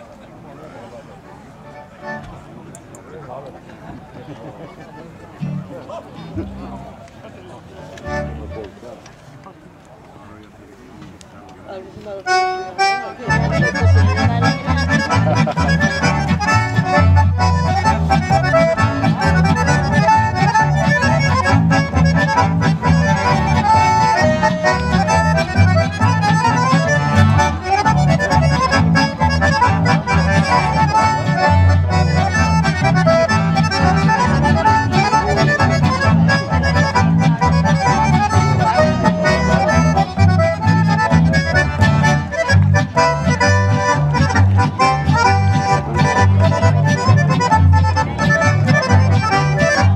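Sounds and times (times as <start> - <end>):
accordions playing melody: 1.1 - 2.6, 4.6 - 6.9, 8.0 - 8.8, 12.2 - 49.9
upright double bass: 5.0 - 7.0, 8.0 - 8.8, 12.3 - 49.9
acoustic guitar: 13.2 - 49.9.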